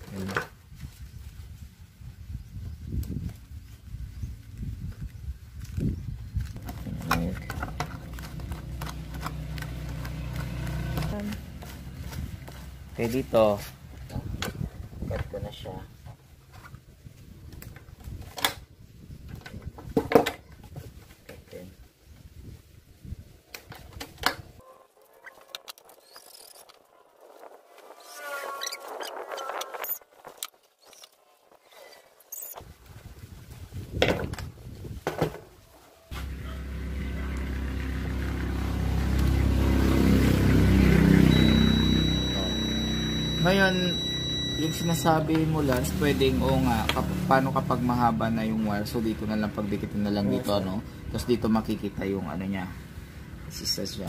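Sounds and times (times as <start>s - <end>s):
handling rustle: 3.1s - 14.1s
low engine hum: 6.6s - 13.9s, 36.1s - 53.6s
high-pitched beep: 41.2s - 46.4s.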